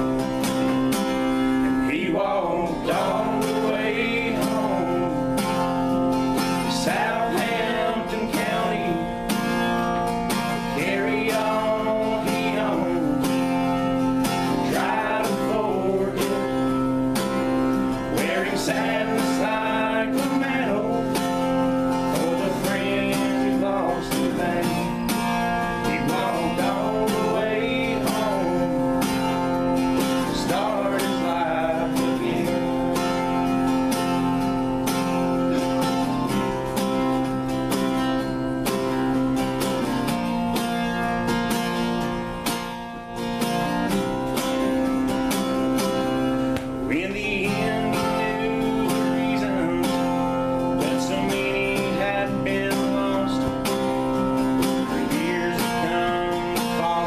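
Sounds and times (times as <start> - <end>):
people singing: 1.6 - 34.2, 46.8 - 57.0.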